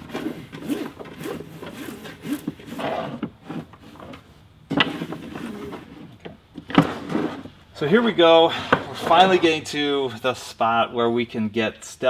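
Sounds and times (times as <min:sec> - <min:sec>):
rope dragging on wooden table: 0:00.0 - 0:06.2, 0:06.8 - 0:07.6.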